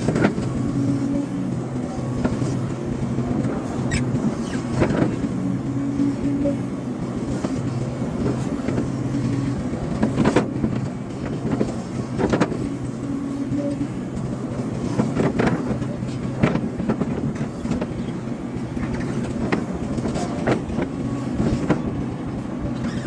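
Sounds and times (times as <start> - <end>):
excavator diesel engine running: 0.0 - 23.0.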